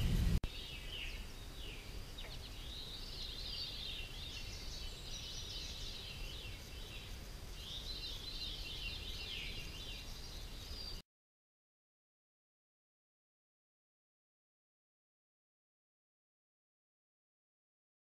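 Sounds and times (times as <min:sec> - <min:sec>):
steady low rumble: 0:00.0 - 0:00.5
birds chirping: 0:00.0 - 0:11.0.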